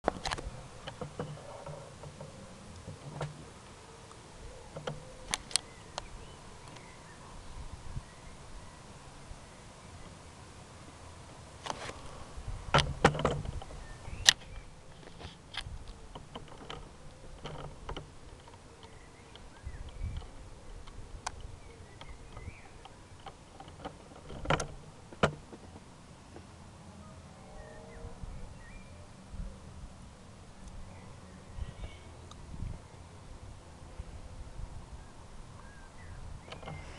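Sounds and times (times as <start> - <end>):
faint low hum: 0.1 - 36.9.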